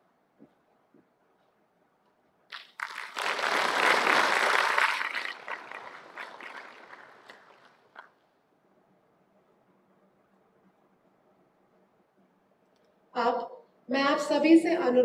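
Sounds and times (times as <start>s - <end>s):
audience clapping: 2.5s - 8.1s.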